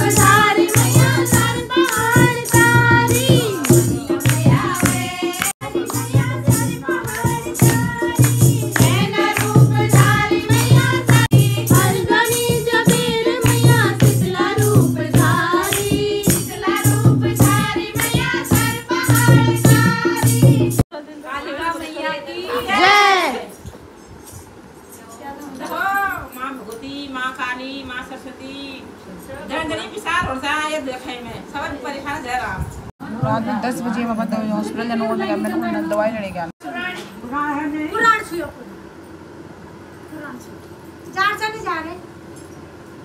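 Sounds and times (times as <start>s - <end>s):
devotional singing: 0.0s - 20.8s
steady percussion beat: 0.0s - 20.9s.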